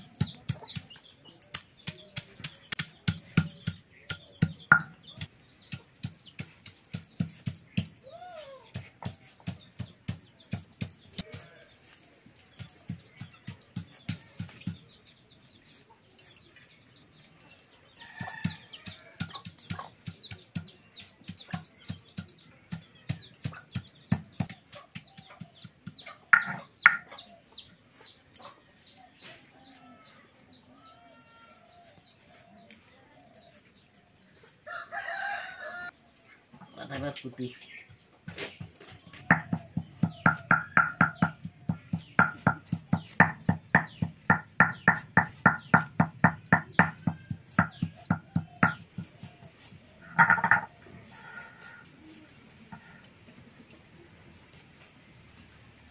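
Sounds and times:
chickens clucking: 17.6 - 30.8, 31.6 - 55.1
food chopping knocks: 39.3 - 49.1.

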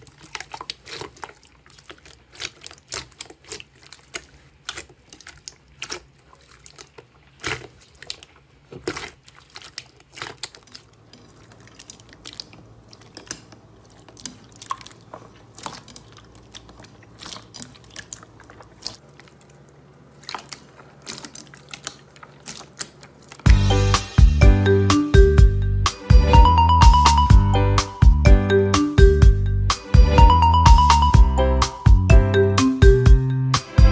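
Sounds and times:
hands squelching slime: 0.0 - 33.9.

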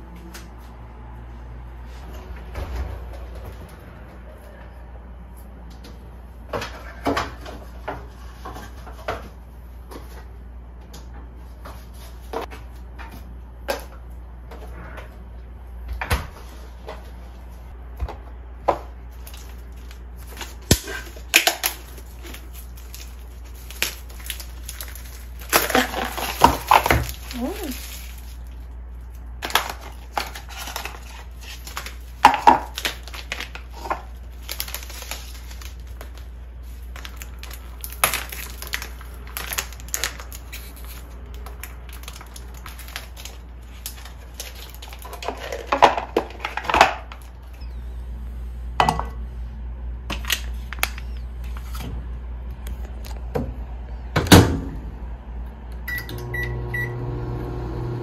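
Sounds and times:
appliance humming: 0.0 - 58.0
steady low hum: 9.2 - 58.0
objects knocking and clattering: 29.4 - 34.1, 44.8 - 47.2.

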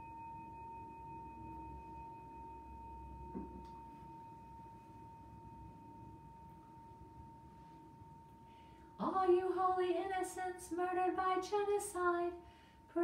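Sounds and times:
faint steady pure tone: 0.0 - 13.0
soft knock: 3.3 - 3.8.

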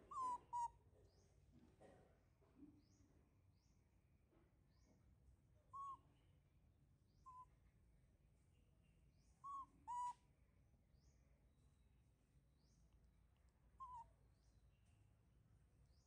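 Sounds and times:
baby monkey coo calls: 0.0 - 0.8, 5.7 - 6.0, 9.4 - 10.2, 13.8 - 14.1
faint high chirps: 0.0 - 1.3, 5.6 - 6.3, 8.5 - 10.3, 12.6 - 15.1.

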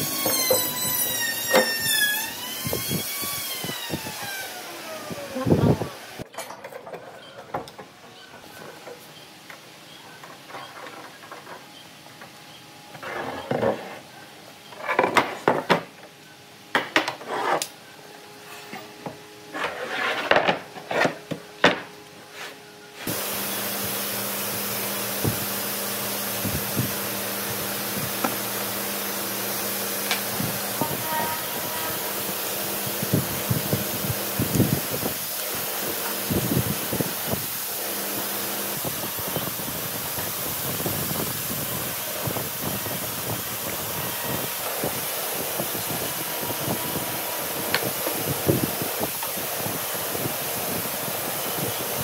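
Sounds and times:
steady hiss: 23.0 - 52.0.

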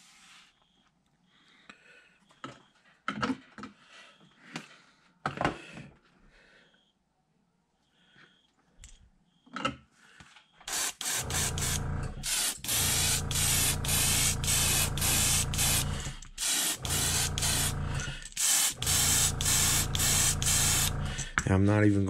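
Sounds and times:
airbrush spraying paint: 10.7 - 21.4.

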